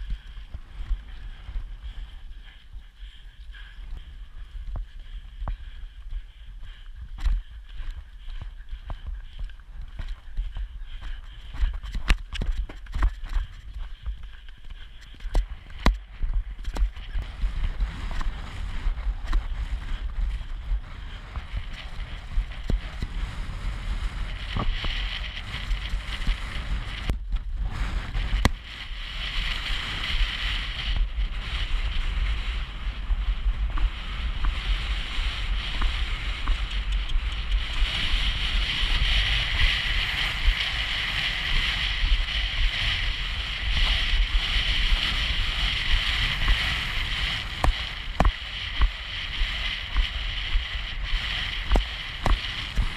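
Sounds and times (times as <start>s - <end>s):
wind buffeting microphone: 0.0s - 52.9s
hoofbeats: 29.5s - 50.2s.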